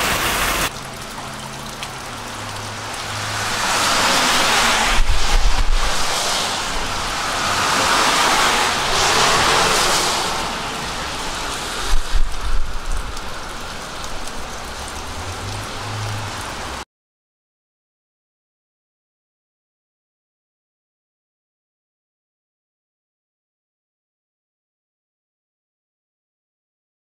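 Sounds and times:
sharp water splashes: 0:00.0 - 0:16.8
steady rain falling: 0:00.0 - 0:16.8
water dripping off awning: 0:00.0 - 0:16.8.

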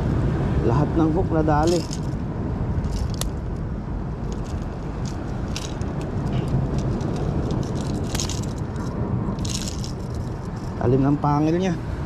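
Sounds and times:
wind buffeting microphone: 0:00.0 - 0:12.0
light clicks and rustles: 0:01.6 - 0:02.2, 0:02.8 - 0:10.9.

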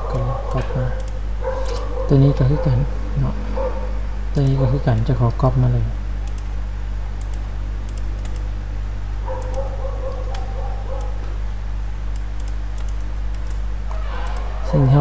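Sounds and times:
steady low hum: 0:00.0 - 0:15.0
keyboard and mouse clicks: 0:00.1 - 0:01.9, 0:06.2 - 0:06.5, 0:07.2 - 0:08.5, 0:09.3 - 0:11.4, 0:12.1 - 0:14.5.

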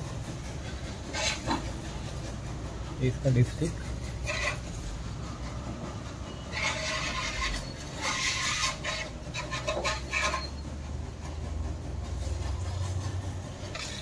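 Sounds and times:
dipstick rubbing and scraping: 0:00.1 - 0:14.0.

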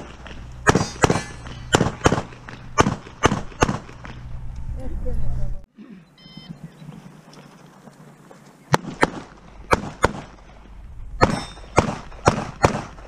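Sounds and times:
pistol shots: 0:00.6 - 0:04.0, 0:08.7 - 0:10.4, 0:11.2 - 0:13.0.

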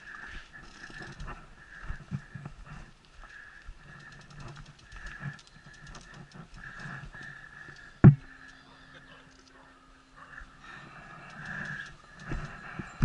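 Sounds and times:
light ticking: 0:03.0 - 0:09.6, 0:10.7 - 0:12.6.

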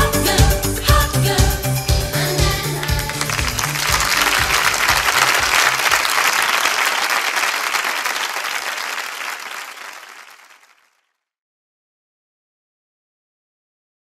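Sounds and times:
music: 0:00.0 - 0:05.9
audience applauding: 0:02.6 - 0:11.0.

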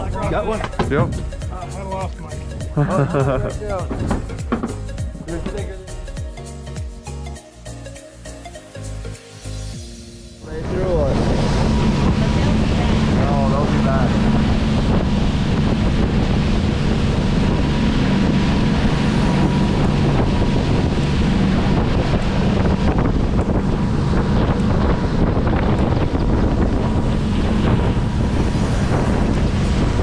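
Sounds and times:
wind buffeting microphone: 0:00.0 - 0:05.8, 0:10.4 - 0:30.0
boat engine drone: 0:00.0 - 0:30.0
rush of boat wake: 0:08.8 - 0:30.0.

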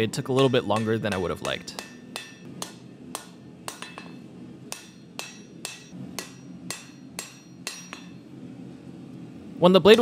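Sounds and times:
hammer striking steel on anvil: 0:00.0 - 0:08.3.

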